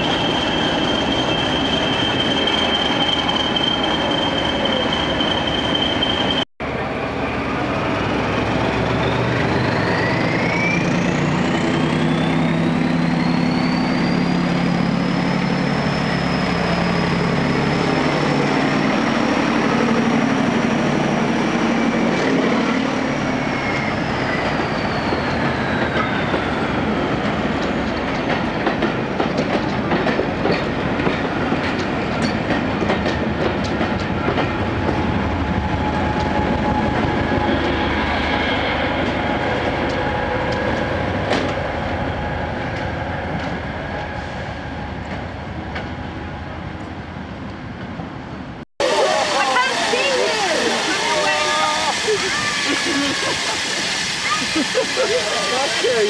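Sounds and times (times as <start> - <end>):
train wheels clicking over rail joints: 25.1 - 37.8.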